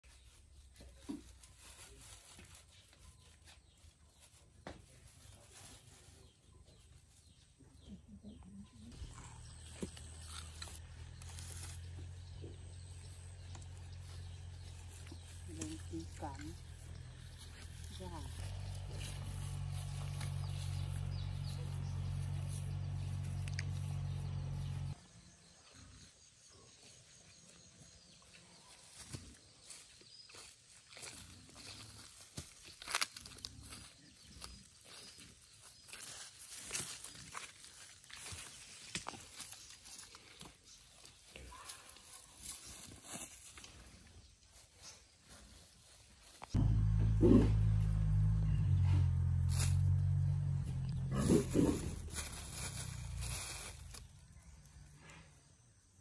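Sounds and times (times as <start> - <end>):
rustle: 0.0 - 56.0
steady low hum: 46.6 - 54.8.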